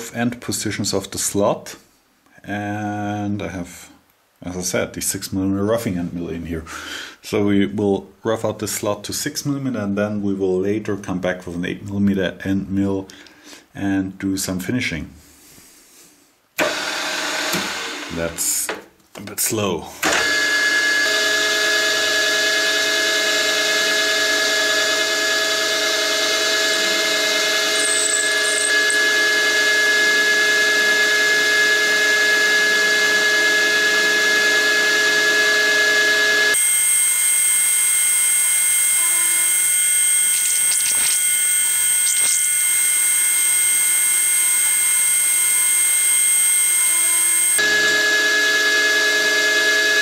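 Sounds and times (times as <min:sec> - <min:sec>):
milling machine whine: 0:16.6 - 0:18.8, 0:20.0 - 0:50.0.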